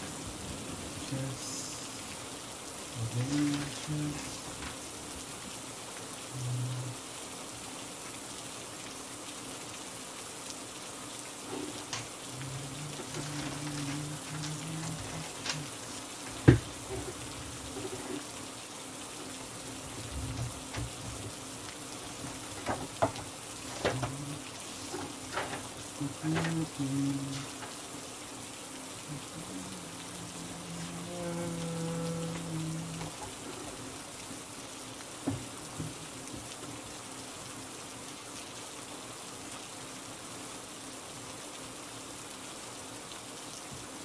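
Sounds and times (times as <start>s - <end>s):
steady rain: 0.0s - 44.0s.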